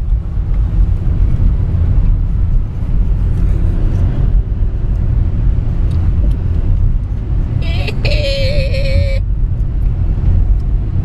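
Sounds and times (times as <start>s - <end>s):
car driving interior rumble: 0.0s - 11.0s.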